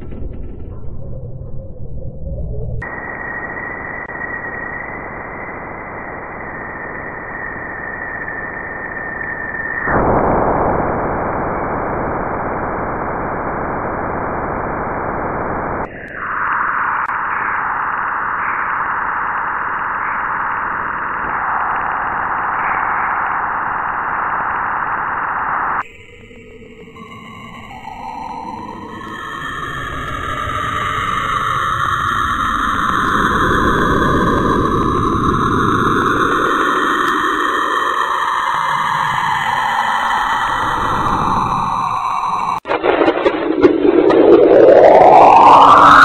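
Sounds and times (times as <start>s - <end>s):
thin high whistle: 2.8s - 10.1s
rushing static hiss: 9.9s - 25.8s.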